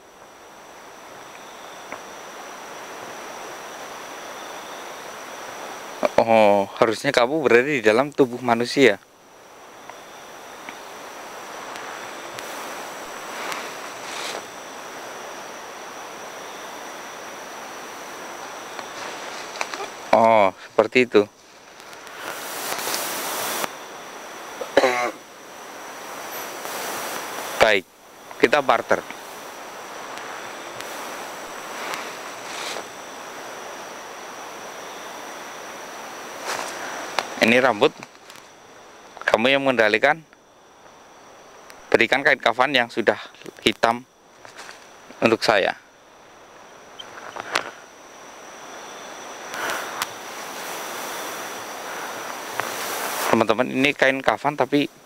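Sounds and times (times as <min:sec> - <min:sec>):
steady rushing noise: 0:00.0 - 0:40.3, 0:44.8 - 0:55.0
outdoor background hiss: 0:00.0 - 0:55.0
faint ticks: 0:01.3 - 0:02.1, 0:10.6 - 0:10.8, 0:21.4 - 0:23.8, 0:30.0 - 0:32.9, 0:36.4 - 0:39.3, 0:49.5 - 0:50.2.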